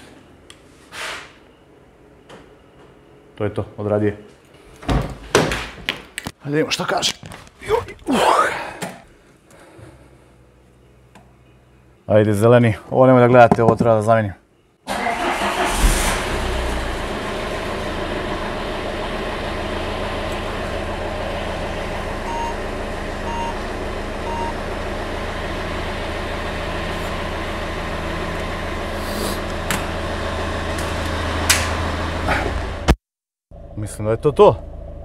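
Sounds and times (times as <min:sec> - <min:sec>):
car engine idling: 0:15.2 - 0:32.9
short electronic beeps: 0:22.3 - 0:22.6, 0:23.3 - 0:23.6, 0:24.2 - 0:24.6.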